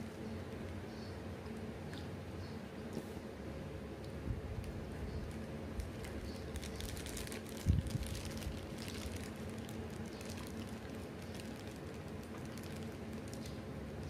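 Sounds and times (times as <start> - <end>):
low steady hum: 0.0 - 14.0
plastic wrapper crinkling: 5.3 - 13.7.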